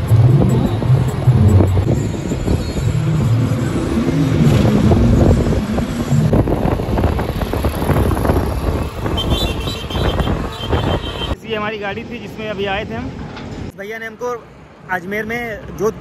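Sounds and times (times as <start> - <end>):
truck engine: 0.0 - 11.4
road noise: 0.0 - 16.0.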